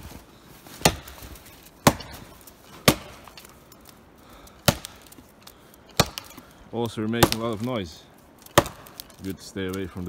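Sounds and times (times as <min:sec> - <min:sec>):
axe chopping tree: 0:00.8 - 0:03.6, 0:04.6 - 0:05.2, 0:05.9 - 0:06.5, 0:07.1 - 0:07.7, 0:08.4 - 0:09.2.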